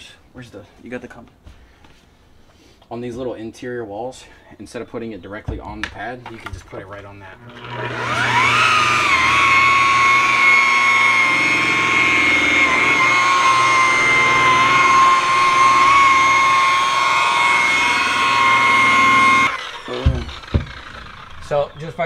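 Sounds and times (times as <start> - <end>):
electric polisher whining: 7.4 - 22.0.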